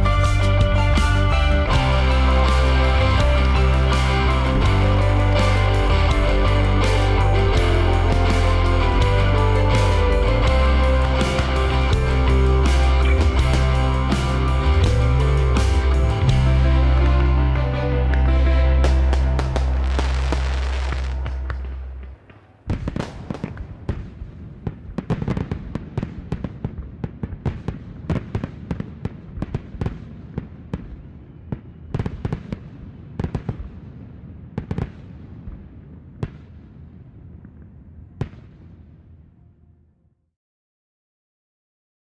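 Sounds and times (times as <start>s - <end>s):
background music: 0.0s - 24.4s.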